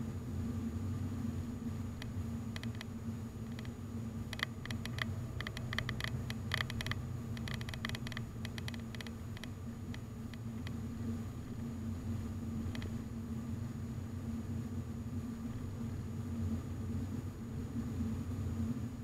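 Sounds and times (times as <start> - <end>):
car engine and tyres rumbling: 1.9 - 13.1
small sharp clicks and rattles: 2.0 - 10.8, 12.6 - 13.0.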